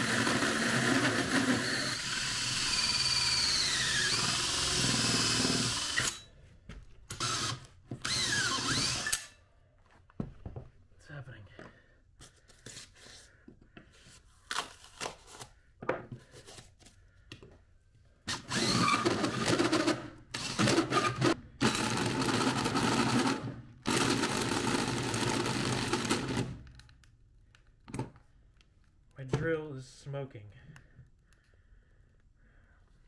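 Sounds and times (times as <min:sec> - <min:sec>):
drill driving hole saw: 0:00.0 - 0:06.3, 0:07.1 - 0:09.4, 0:18.3 - 0:26.7.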